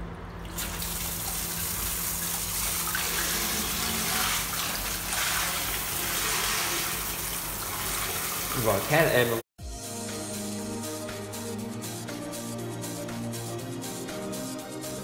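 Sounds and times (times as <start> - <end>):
water spraying from shower head: 0.6 - 9.1.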